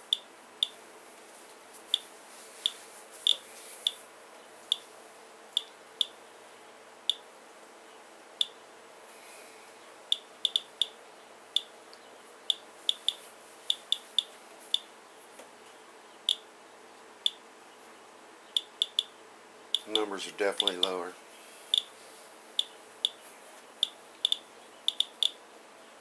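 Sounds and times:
geiger counter clicking: 10.1s - 11.0s, 12.5s - 14.8s, 18.6s - 19.1s, 19.8s - 21.0s, 23.8s - 25.4s.

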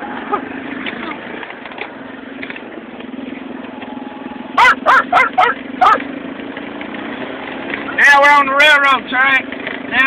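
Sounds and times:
vehicle engine and road noise: 0.0s - 10.0s
dog barking: 4.6s - 6.0s.

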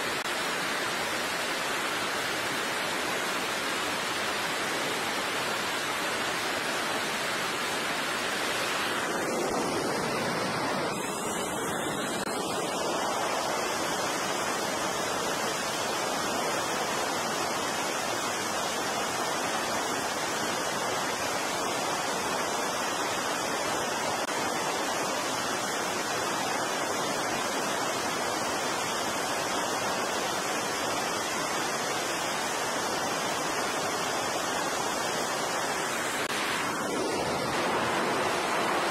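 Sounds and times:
jet engines roaring: 8.2s - 13.4s, 36.0s - 38.9s.

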